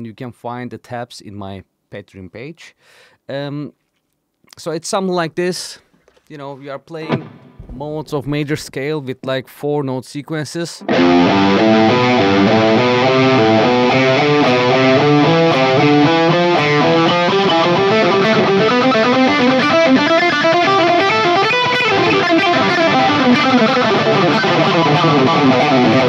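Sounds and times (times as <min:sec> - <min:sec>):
electric guitar fast picked notes: 0:10.9 - 0:26.0.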